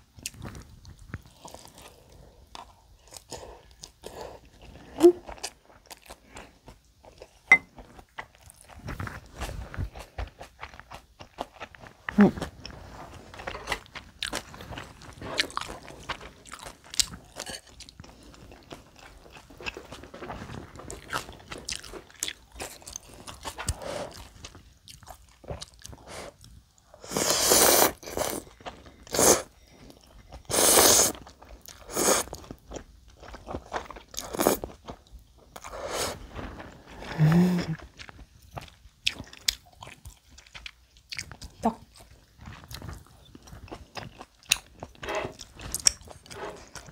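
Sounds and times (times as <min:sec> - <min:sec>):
chewing: 0:00.2 - 0:27.0, 0:37.8 - 0:46.9
noodle slurps: 0:30.5 - 0:31.2.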